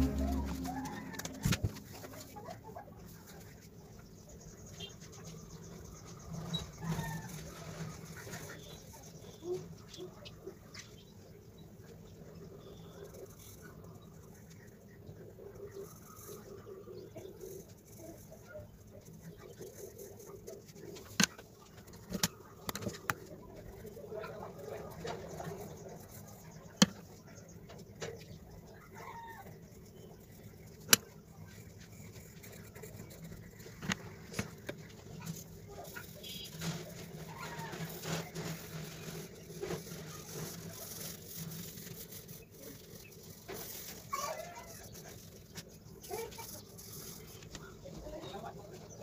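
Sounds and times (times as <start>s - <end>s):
low steady hum: 0.0s - 2.7s
faint background murmur: 22.3s - 49.0s
pencil scratching on paper: 29.9s - 34.3s.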